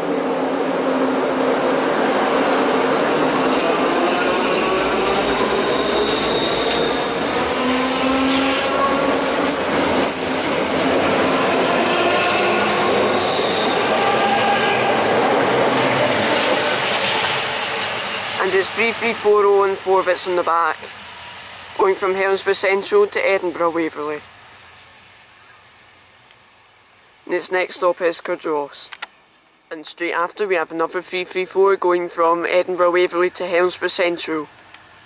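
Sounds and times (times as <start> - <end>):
train wheels running on rail: 0.0 - 23.2
traction motors whining: 0.6 - 18.3.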